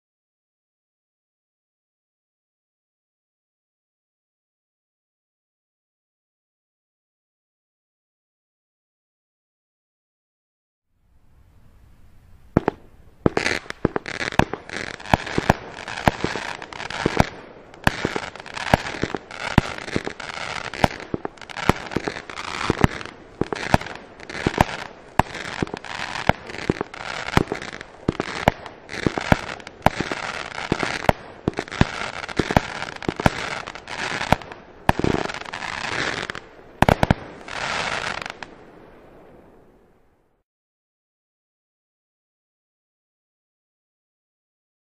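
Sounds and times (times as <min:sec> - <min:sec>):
firework crackling and hissing: 0:11.2 - 0:39.9
firework bangs: 0:12.4 - 0:39.7.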